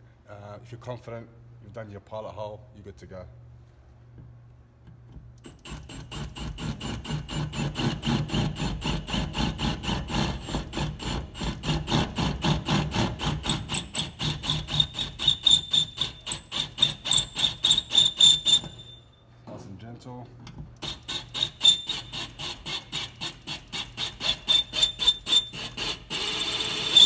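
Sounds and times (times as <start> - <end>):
cordless drill boring into sheet metal: 5.4 - 19.0, 20.8 - 27.0.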